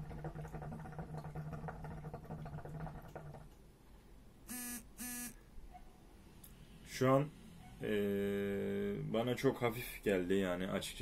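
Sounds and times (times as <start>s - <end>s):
hookah water bubbling: 0.0s - 3.7s
phone buzzing: 4.5s - 5.4s.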